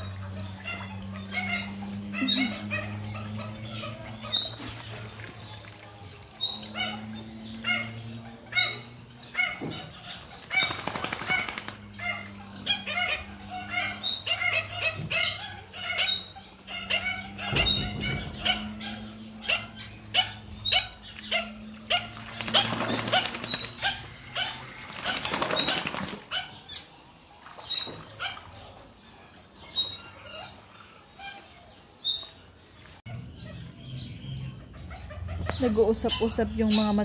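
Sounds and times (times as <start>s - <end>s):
duck splashing and wing beating: 4.0s - 6.4s, 9.7s - 11.9s, 21.8s - 24.0s, 24.6s - 26.3s.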